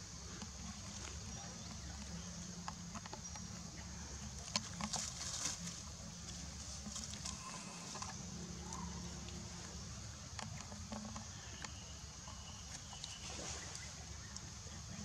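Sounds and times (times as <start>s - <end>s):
steady high hiss: 0.0s - 2.9s
faint clicks and ticks: 0.1s - 15.0s.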